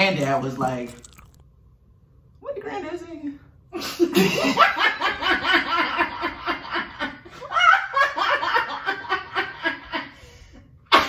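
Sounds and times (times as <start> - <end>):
young women laughing: 3.8 - 10.1.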